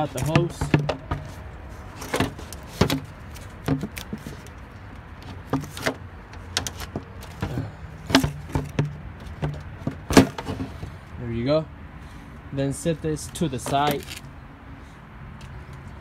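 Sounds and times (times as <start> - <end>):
plastic duct knocking and scraping: 0.0 - 1.4, 2.0 - 4.5, 5.2 - 10.9.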